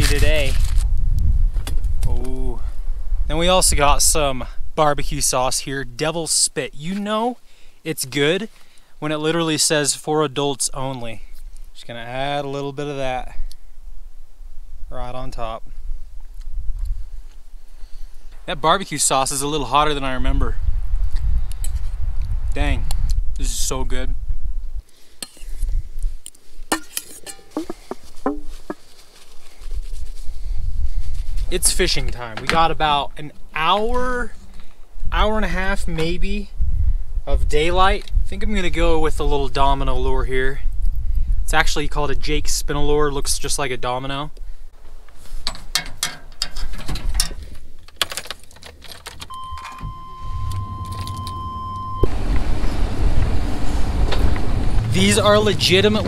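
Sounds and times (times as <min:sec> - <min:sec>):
metal utensils clinking on foil: 0:26.7 - 0:27.6
vehicle engine rumbling: 0:44.8 - 0:56.0
keys jangling: 0:45.5 - 0:49.8, 0:50.5 - 0:51.4
steady high tone: 0:49.3 - 0:52.1.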